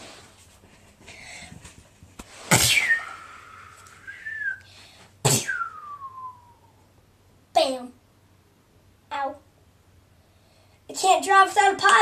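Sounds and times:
falling whistled tone: 2.7s - 4.7s, 5.5s - 6.8s.

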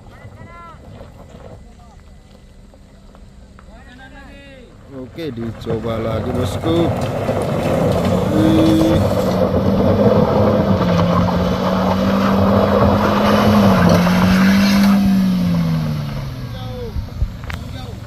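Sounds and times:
wheels spinning on dirt: 0.0s - 18.0s
car engine revving hard: 6.8s - 18.0s.

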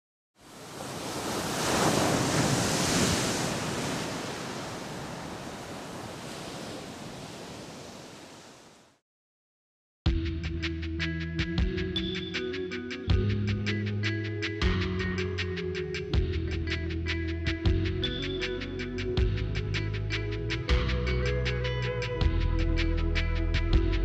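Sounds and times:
ocean surf washing up a beach: 0.4s - 9.0s
music: 10.1s - 24.0s.

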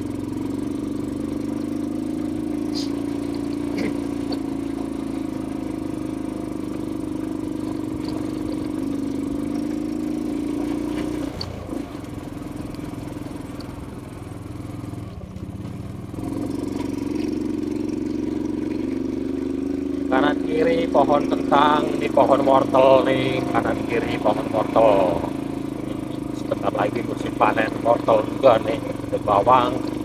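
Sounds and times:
motor scooter engine running: 0.0s - 30.0s.

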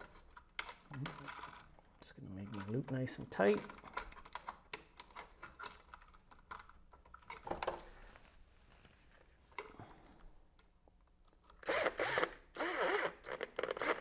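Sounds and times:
cordless drill driving screw: 11.6s - 14.0s.

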